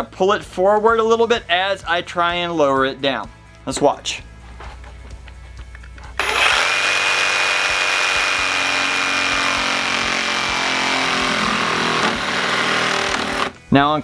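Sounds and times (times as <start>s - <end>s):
jigsaw cutting wood: 6.2s - 13.6s.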